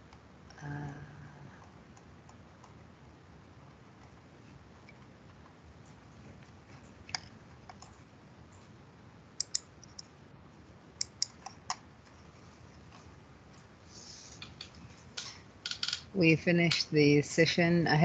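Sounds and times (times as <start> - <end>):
faint room noise: 0.0 - 18.0
computer mouse clicks: 7.1 - 8.0, 9.4 - 10.1, 11.0 - 12.2, 14.4 - 16.1.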